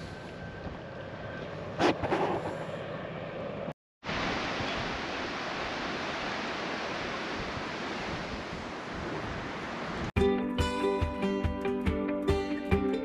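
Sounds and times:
wind rushing over microphone: 4.1 - 10.1.

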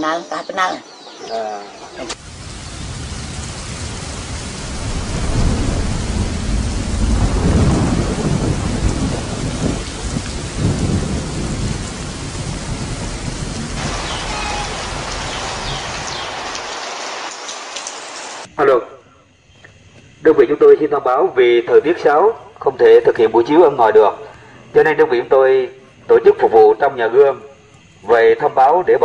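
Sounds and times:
heavy rain: 2.0 - 18.7
low rumbling thunder: 2.2 - 16.6.

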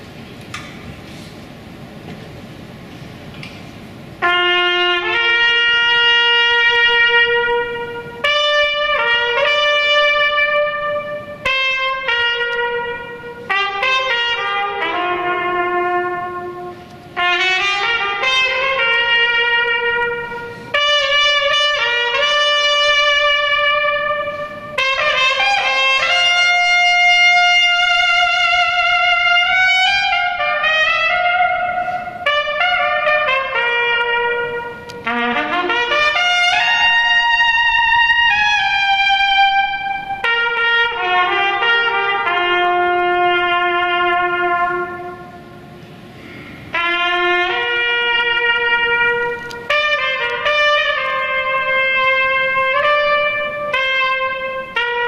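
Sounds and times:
solo trumpet melody: 4.2 - 55.0.

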